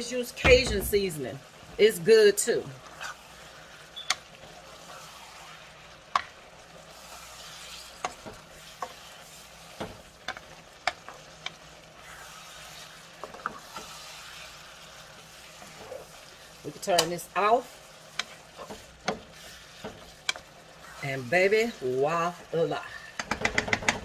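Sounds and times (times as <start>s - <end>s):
food sizzling in a skillet: 0.0s - 24.0s.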